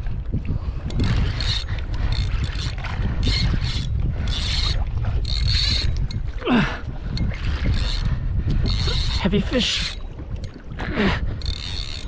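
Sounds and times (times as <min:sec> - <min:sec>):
low wind: 0:00.0 - 0:12.0
water noise: 0:00.0 - 0:12.0
fishing reel whirring: 0:00.8 - 0:06.2, 0:07.1 - 0:10.0, 0:11.3 - 0:12.0.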